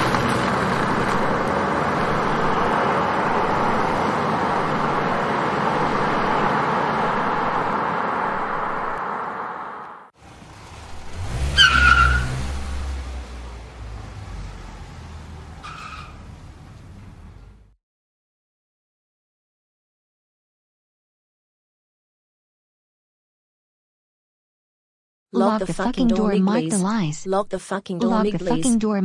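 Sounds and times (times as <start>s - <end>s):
car engine running: 0.0s - 17.7s
tyre squeal: 11.5s - 12.4s, 15.5s - 16.3s.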